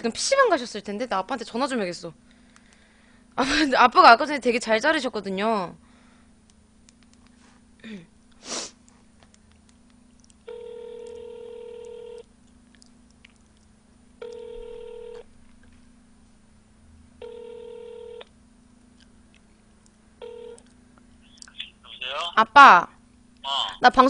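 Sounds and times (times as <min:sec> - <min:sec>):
phone ringback tone: 0:10.5 - 0:12.2, 0:14.2 - 0:15.2, 0:17.2 - 0:18.3, 0:20.2 - 0:20.6.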